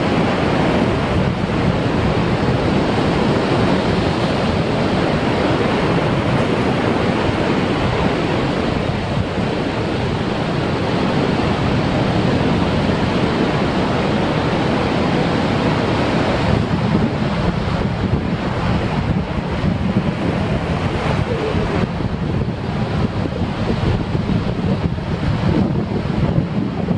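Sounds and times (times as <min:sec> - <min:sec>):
surf breaking on rocks: 0:00.0 - 0:26.9.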